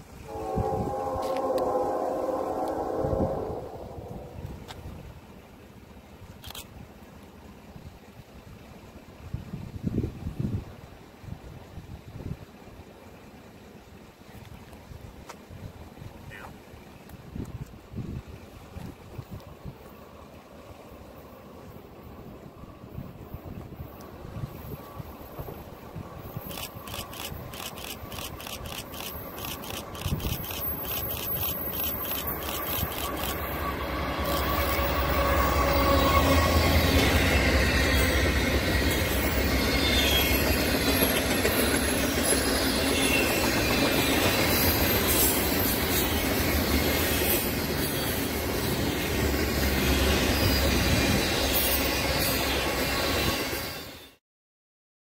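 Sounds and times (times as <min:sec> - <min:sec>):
freight train passing: 0:00.0 - 0:54.2.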